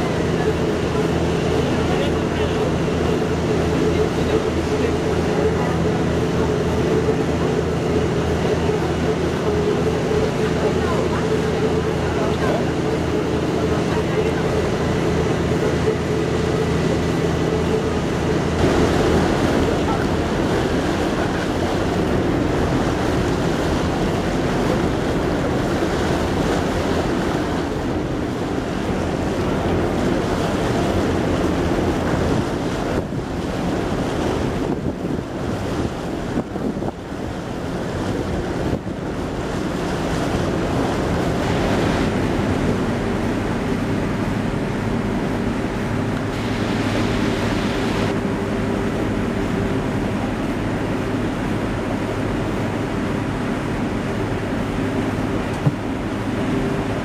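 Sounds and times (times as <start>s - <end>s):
boat engine droning: 0.0s - 57.0s
water rushing and splashing: 0.0s - 57.0s
wind buffeting microphone: 11.6s - 57.0s.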